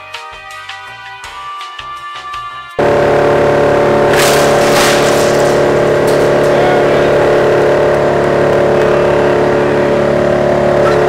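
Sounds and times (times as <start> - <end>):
industrial shredder humming: 2.8 - 11.0
rattling crashes: 2.8 - 11.0.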